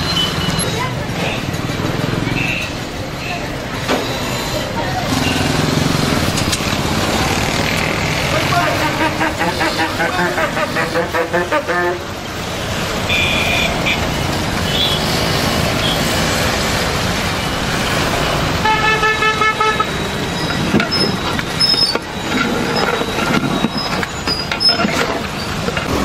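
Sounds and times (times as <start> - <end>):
street traffic: 0.0 - 26.0
vehicle horn honking: 8.5 - 12.1, 13.1 - 15.1, 18.6 - 20.1.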